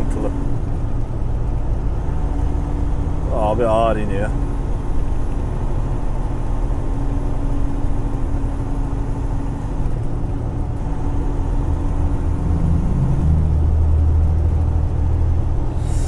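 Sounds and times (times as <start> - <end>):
truck engine and road drone: 0.0 - 16.0
engine brake: 15.7 - 16.0.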